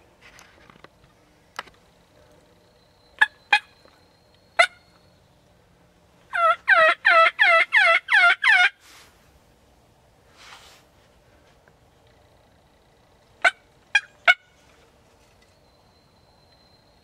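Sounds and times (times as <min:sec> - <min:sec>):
turkey clucking: 0:03.2 - 0:03.7, 0:04.6 - 0:04.8, 0:06.3 - 0:08.8
turkey yelping: 0:03.2 - 0:03.8, 0:04.6 - 0:04.8, 0:06.3 - 0:08.8.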